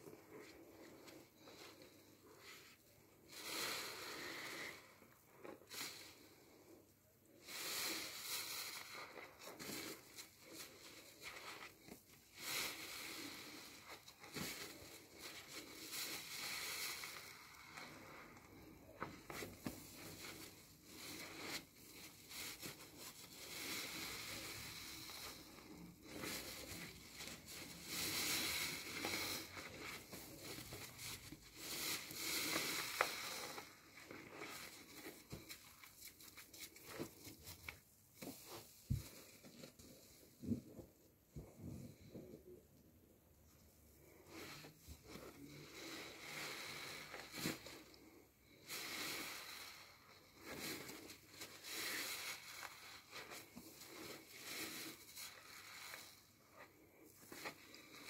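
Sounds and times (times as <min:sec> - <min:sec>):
sponge squelching in lather: 0:07.4 - 0:37.6, 0:44.0 - 0:57.0.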